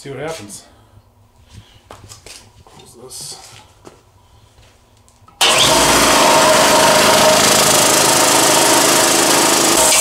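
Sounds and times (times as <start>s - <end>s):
air compressor running: 5.4s - 10.0s.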